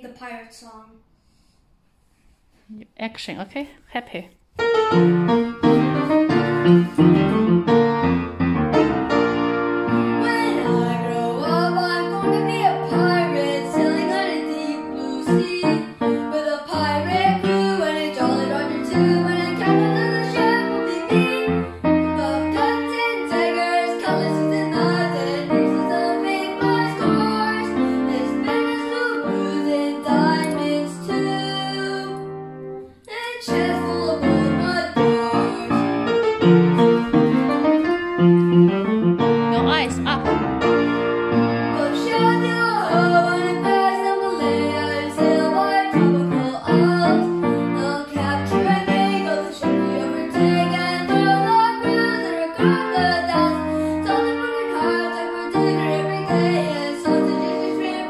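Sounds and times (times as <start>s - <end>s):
upright piano chords: 4.6s - 58.0s
boy singing: 10.2s - 32.3s, 33.0s - 36.1s, 41.8s - 58.0s.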